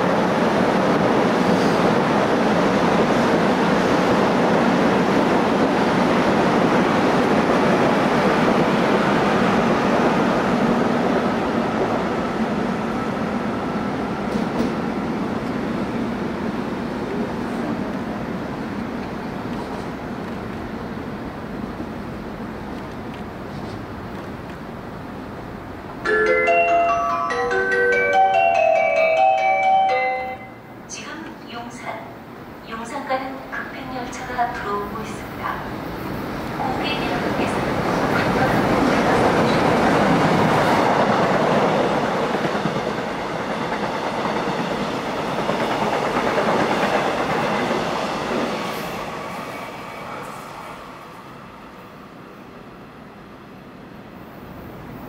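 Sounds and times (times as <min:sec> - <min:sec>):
steady background noise: 0:00.0 - 0:55.0
train running past: 0:00.0 - 0:55.0
marimba-like chime melody: 0:26.0 - 0:30.6.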